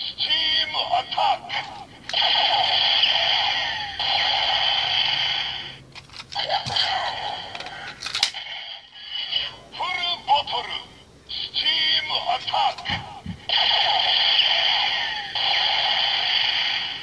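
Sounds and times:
toy gun electronic voice calls: 0.1s - 5.7s, 6.4s - 7.7s, 11.3s - 17.0s
toy gun electronic sound effect: 0.8s - 9.5s, 12.1s - 17.0s.

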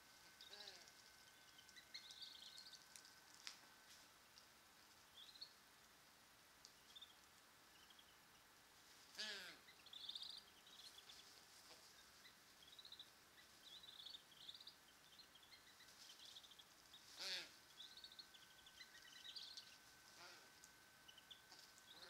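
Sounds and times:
small bird chirping: 0.0s - 5.6s, 6.6s - 8.5s, 9.1s - 22.0s
harsh bird calls: 0.4s - 0.9s, 9.1s - 11.2s, 12.6s - 20.5s.

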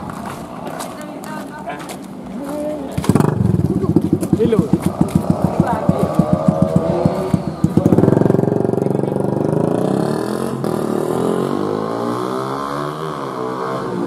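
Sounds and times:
motorcycles passing: 0.0s - 14.0s
motorcycle accelerating hard: 3.0s - 14.0s.

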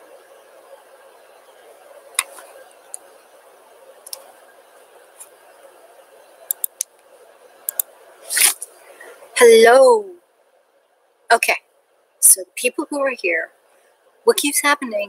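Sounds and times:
low room hum: 0.0s - 15.0s
computer mouse clicks: 4.0s - 4.3s, 6.5s - 7.1s, 7.7s - 7.9s.

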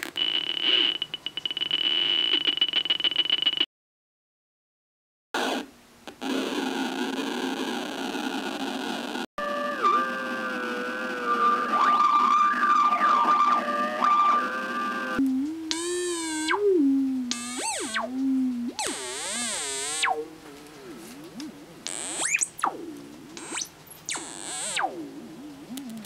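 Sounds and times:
warbling electronic synthesizer tones: 9.4s - 26.0s.

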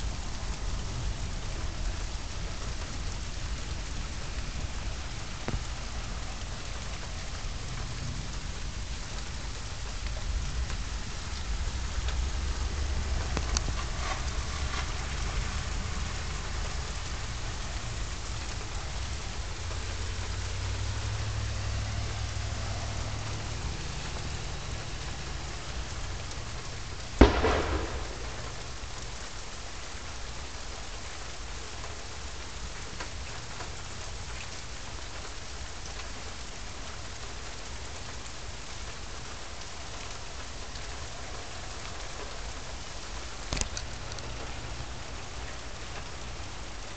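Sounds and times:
steady rain falling: 0.0s - 46.9s
sharp thunder crack: 27.2s - 28.8s
low thunder rumbling: 27.2s - 29.2s.

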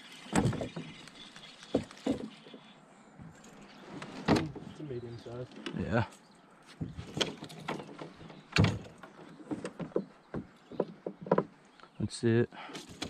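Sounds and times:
knocks on canoe hull: 9.5s - 11.6s.

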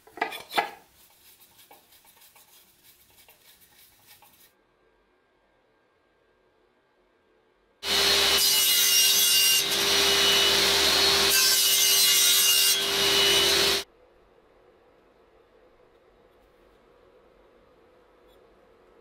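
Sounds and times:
table saw cutting wood: 7.8s - 13.8s.

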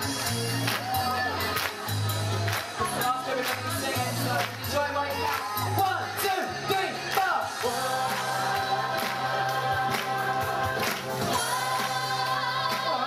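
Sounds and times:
choir singing in harmony: 7.5s - 13.0s.

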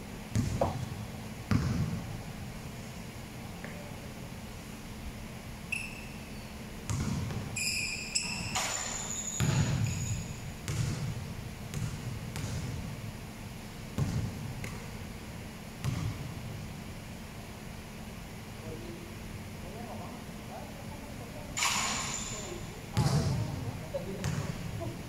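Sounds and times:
basketball bouncing on court floor: 0.3s - 2.0s, 6.8s - 12.9s, 13.9s - 14.9s, 15.8s - 16.3s, 23.0s - 23.6s, 24.2s - 24.6s
short high squeaks: 5.7s - 6.6s, 7.6s - 10.5s, 21.6s - 22.6s.

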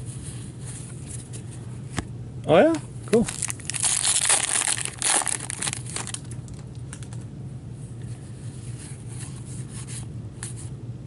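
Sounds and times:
wrapper crinkling: 3.2s - 7.1s.

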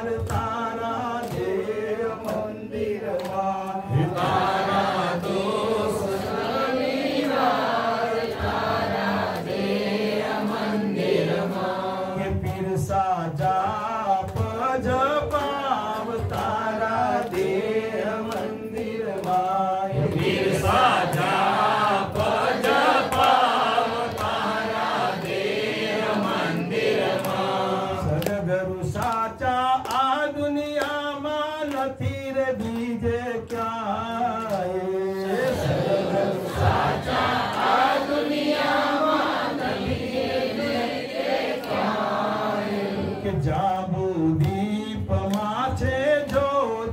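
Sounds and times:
men chanting a hymn: 0.0s - 31.8s, 32.6s - 46.9s.

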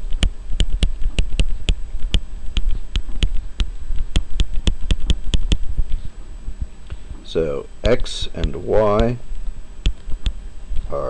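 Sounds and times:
stylus tapping on drawing tablet: 0.1s - 5.7s.

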